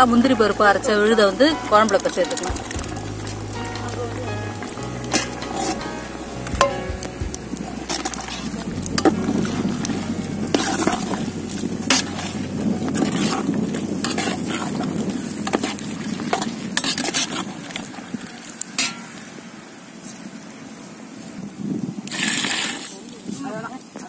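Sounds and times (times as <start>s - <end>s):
curry boiling in pot: 0.2s - 22.8s
metal ladle scraping and knocking pot: 14.0s - 14.7s.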